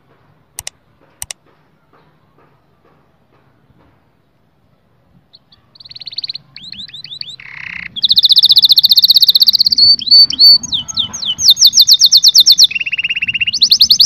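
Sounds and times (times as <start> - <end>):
canary singing trills: 5.2 - 14.0.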